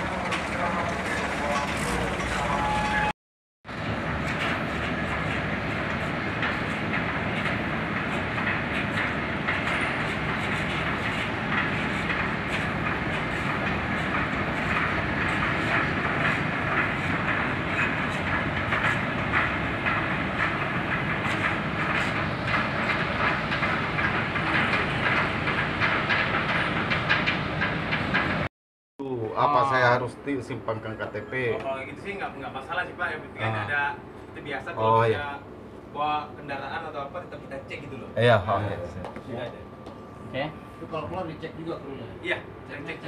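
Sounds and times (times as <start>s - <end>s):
machinery rattling: 0.0s - 3.1s, 3.7s - 28.5s.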